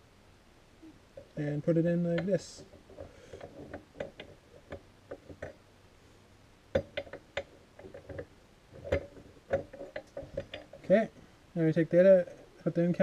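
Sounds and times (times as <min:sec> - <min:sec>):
small metal clicks and taps: 0:06.7 - 0:10.9.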